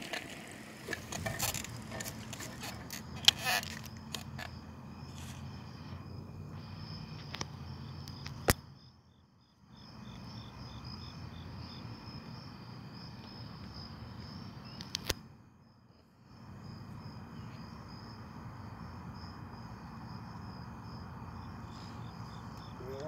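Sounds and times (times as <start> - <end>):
crickets trilling: 0.0 - 23.0.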